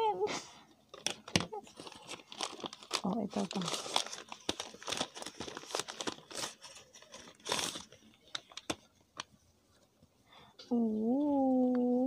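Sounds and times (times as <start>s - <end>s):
gift wrapping crinkling: 0.9s - 9.3s.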